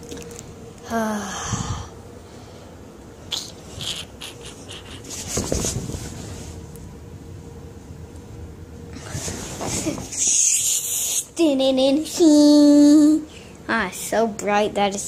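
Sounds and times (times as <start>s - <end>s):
faint steady hum: 0.0s - 15.0s
camera handling rustle among blankets: 5.1s - 6.6s.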